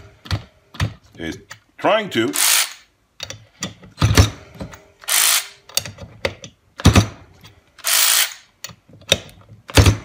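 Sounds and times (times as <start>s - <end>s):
cordless ratchet motor whirring: 5.1s - 5.6s, 7.8s - 8.4s.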